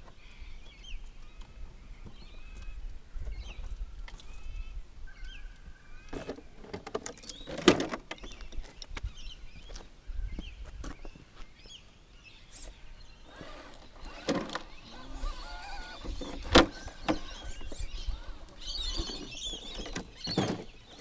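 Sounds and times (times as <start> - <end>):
small birds chirping: 7.1 - 21.0
wind rumble on microphone: 8.4 - 11.2.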